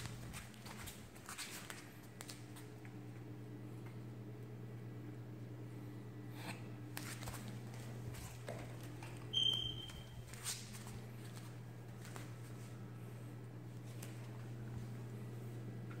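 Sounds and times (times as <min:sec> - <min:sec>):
steady low hum: 0:00.0 - 0:16.0
puppy squeaking: 0:09.3 - 0:10.1.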